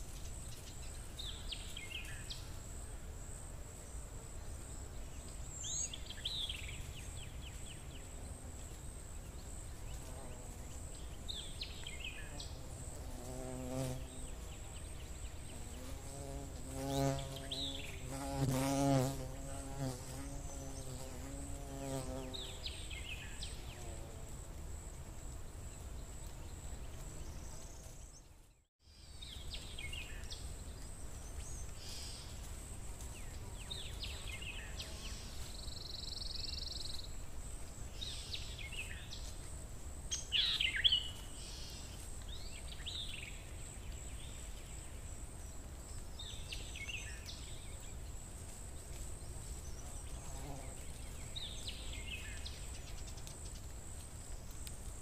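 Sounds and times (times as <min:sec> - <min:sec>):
insect buzzing: 0:09.8 - 0:24.9, 0:49.5 - 0:53.0.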